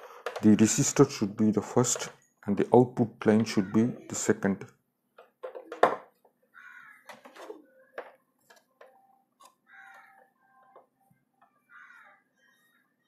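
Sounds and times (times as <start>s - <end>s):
plastic clicks and knocks: 0.0s - 0.6s, 5.2s - 6.4s, 7.0s - 11.6s.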